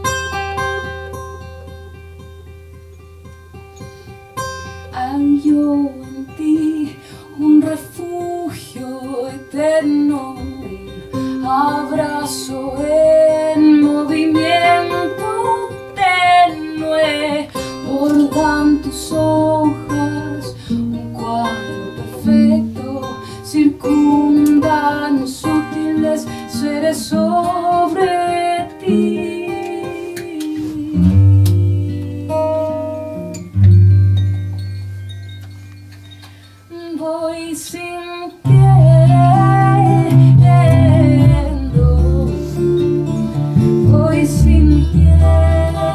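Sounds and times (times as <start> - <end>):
acoustic guitars: 0.0 - 45.9
woman singing: 4.9 - 33.4, 36.7 - 45.9
plucked double bass: 10.4 - 13.7, 17.8 - 25.8, 30.9 - 35.0, 38.5 - 45.9.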